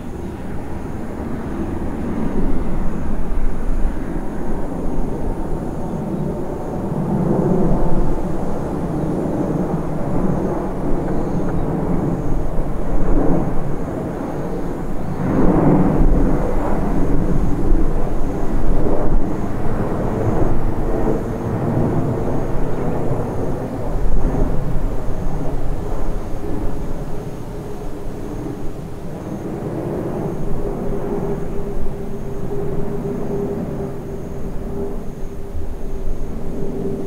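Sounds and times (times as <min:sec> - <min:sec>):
jet engine rumble: 0:00.0 - 0:37.0.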